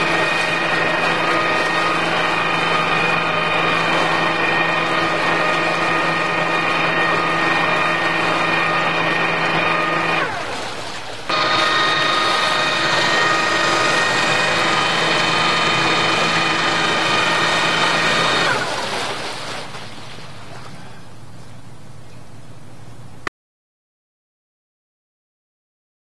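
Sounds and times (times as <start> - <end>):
bow thruster whining: 0.0 - 10.6, 11.2 - 19.2
churning water: 0.0 - 22.0.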